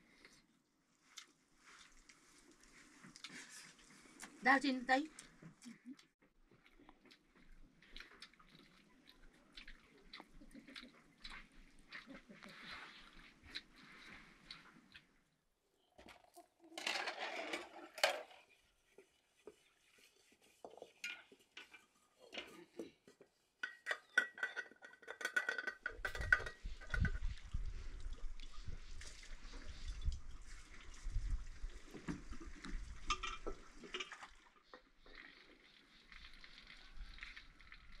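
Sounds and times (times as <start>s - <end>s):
dishes and utensils clinking: 23.6s - 27.2s.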